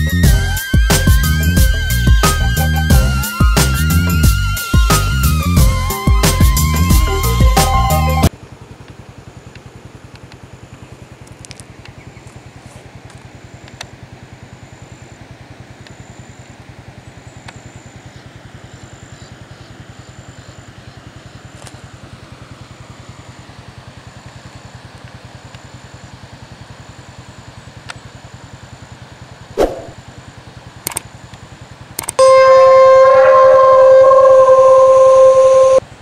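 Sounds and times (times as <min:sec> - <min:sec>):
small engine idling: 0:00.0 - 0:07.4, 0:08.3 - 0:32.1
loud flat horn-like tone: 0:32.2 - 0:35.8.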